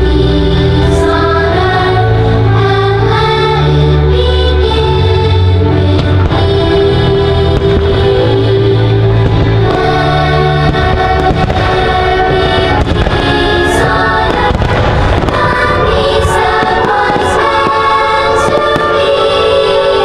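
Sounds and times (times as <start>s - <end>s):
loud show music: 0.0s - 20.0s
fireworks bangs: 5.8s - 20.0s.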